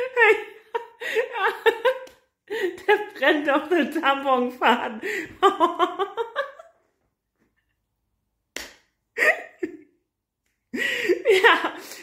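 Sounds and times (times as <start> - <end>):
woman laughing: 0.0 - 6.8, 9.2 - 9.9, 10.8 - 12.0.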